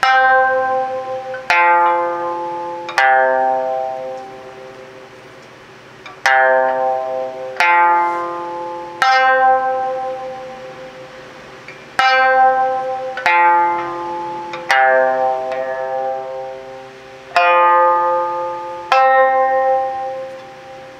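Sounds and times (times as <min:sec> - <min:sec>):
sanshin notes plucked with plectrum: 0:00.0 - 0:20.9.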